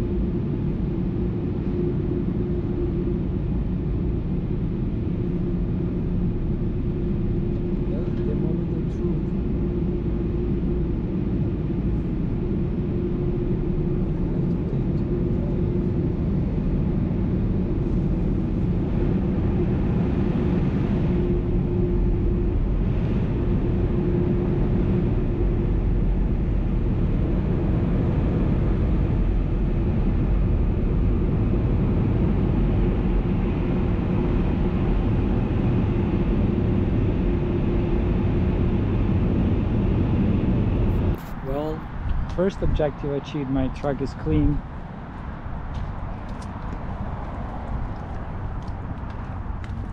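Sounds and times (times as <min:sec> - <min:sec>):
car wash machinery rumbling: 0:40.8 - 0:49.9.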